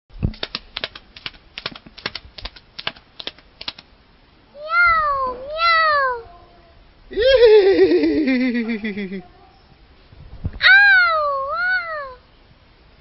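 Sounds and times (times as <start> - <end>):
child imitating cat calls: 4.5 - 7.7, 10.6 - 12.3.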